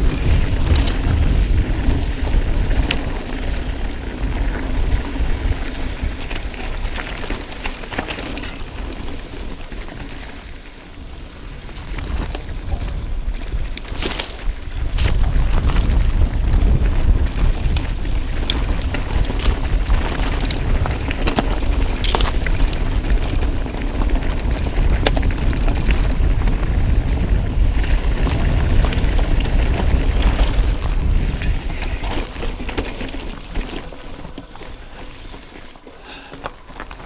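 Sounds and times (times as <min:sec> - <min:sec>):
wind buffeting microphone: 0:00.0 - 0:37.0
bike knocks and rattles: 0:11.7 - 0:37.0.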